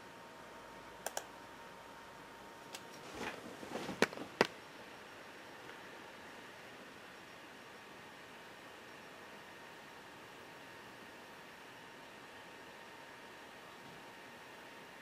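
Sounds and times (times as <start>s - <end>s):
computer mouse double click: 1.0s - 1.3s.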